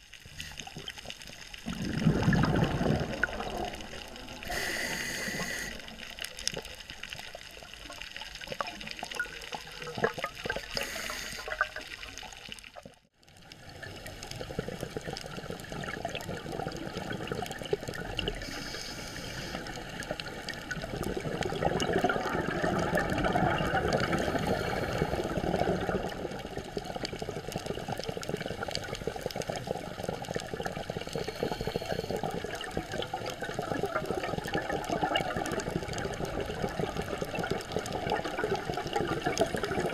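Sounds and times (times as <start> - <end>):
exhaled bubbles gurgling: 0.0 - 39.9
regulator hiss: 4.4 - 6.0, 10.7 - 11.6, 18.4 - 20.0.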